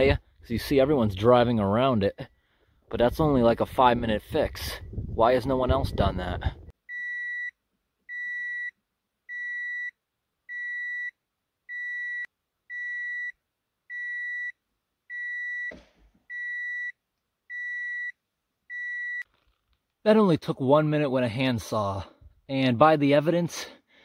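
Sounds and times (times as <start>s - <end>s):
vehicle warning chime beeping: 6.9s - 19.3s
rustling thump: 15.7s - 16.2s.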